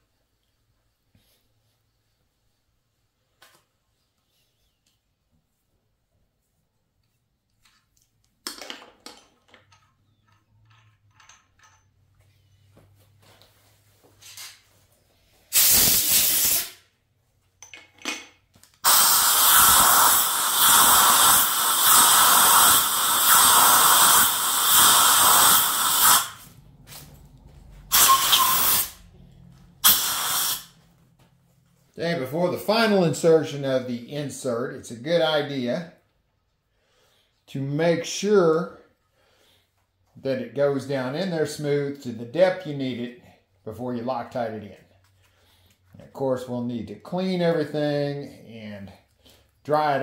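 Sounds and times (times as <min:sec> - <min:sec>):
compressed air blasts: 0:15.4 - 0:17.0, 0:18.8 - 0:27.0, 0:27.9 - 0:29.1, 0:29.7 - 0:30.8.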